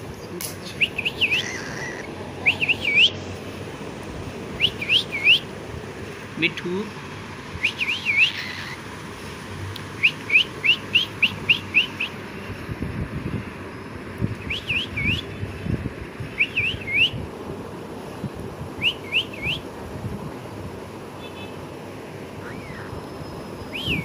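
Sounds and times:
cockatiel chirping: 0.6 - 3.1, 7.6 - 8.8.

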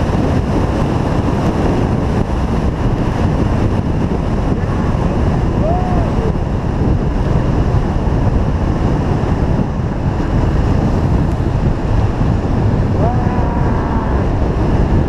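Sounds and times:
wind buffeting microphone: 0.0 - 15.0
motorcycle engine: 7.8 - 15.0.

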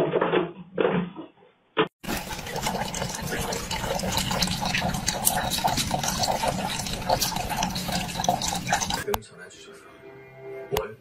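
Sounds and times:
water splashing in plastic bottle: 2.0 - 9.1.

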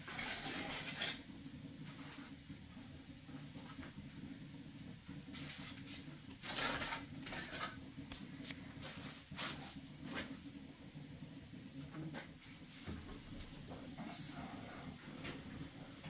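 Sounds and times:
trowel scraping mortar: 0.0 - 1.2, 6.4 - 7.8.

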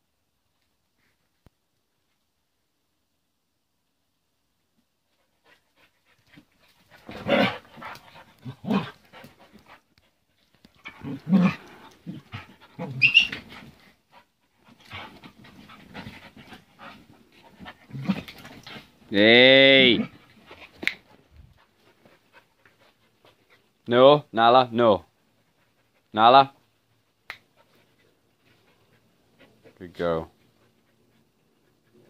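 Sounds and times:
dogs panting: 5.1 - 19.2, 19.9 - 23.8, 25.2 - 32.0
dogs growling and snarling: 6.8 - 9.8, 10.7 - 13.9, 14.6 - 19.1.

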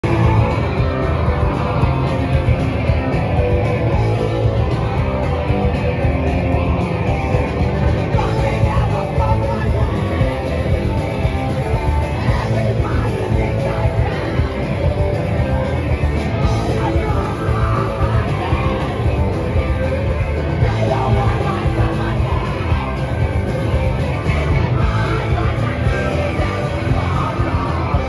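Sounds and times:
live punk rock band: 0.0 - 28.0
person singing: 7.2 - 28.0.

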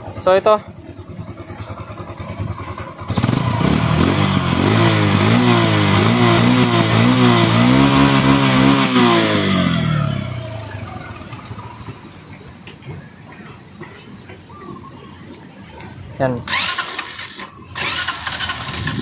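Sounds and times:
motorcycle engine revving: 0.0 - 12.2, 16.4 - 19.0.

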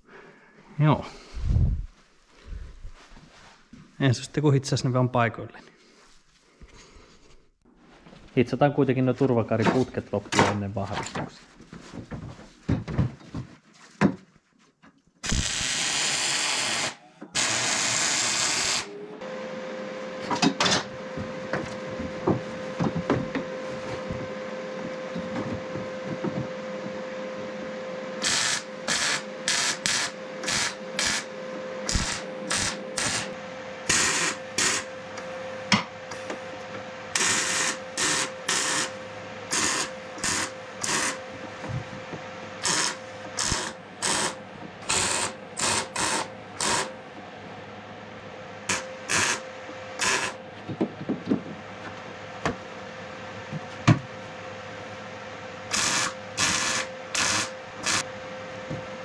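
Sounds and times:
arc welding: 15.2 - 18.9, 28.2 - 34.9, 37.1 - 41.2, 42.6 - 47.0, 48.7 - 49.4, 50.0 - 50.4, 55.7 - 58.1
short welding bursts: 15.2 - 18.9
steady hum with crackles: 18.9 - 59.0.

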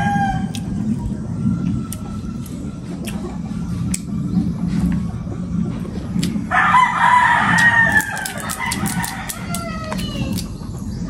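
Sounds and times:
rooster crowing: 0.0 - 0.8, 6.5 - 10.5
low steady hum: 0.0 - 11.0
crab shell clicks: 7.6 - 10.5.

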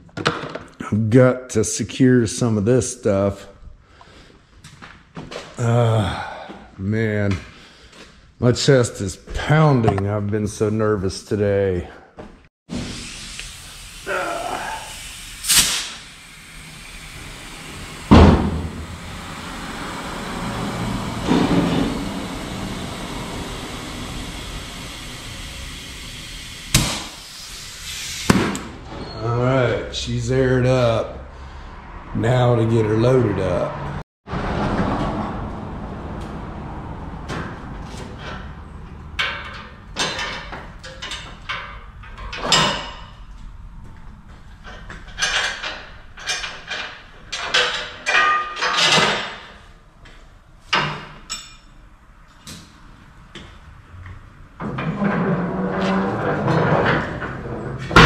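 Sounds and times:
loud thump: 18.1 - 19.0
metal clanks and knocks: 37.2 - 43.4, 44.5 - 49.6, 54.6 - 58.0.

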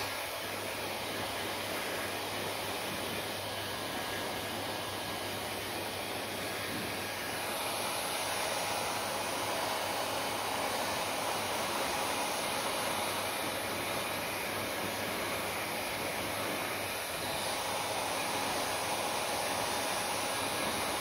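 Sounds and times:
hair dryer blowing: 0.0 - 21.0.

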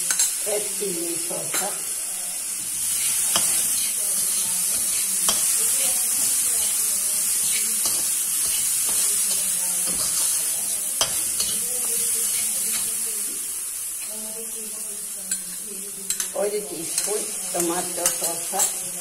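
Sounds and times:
vegetables sizzling in a wok: 0.0 - 19.0
spatula scraping a wok: 2.5 - 13.1, 15.3 - 19.0.

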